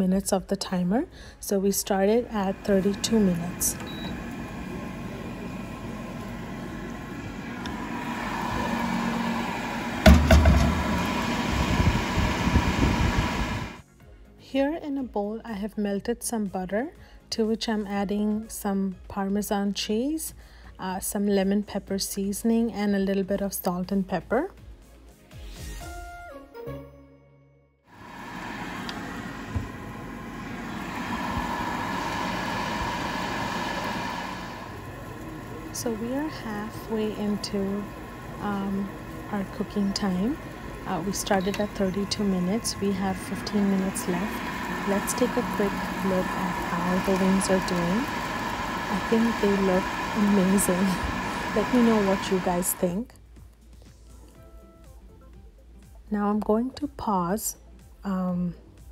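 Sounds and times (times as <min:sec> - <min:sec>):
air fryer fan humming: 0:01.2 - 0:13.8, 0:27.9 - 0:53.0
thump: 0:10.0 - 0:10.8.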